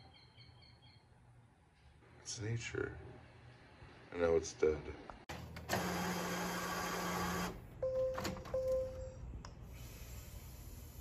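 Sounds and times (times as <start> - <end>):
printer mechanism whirring: 5.6 - 7.6.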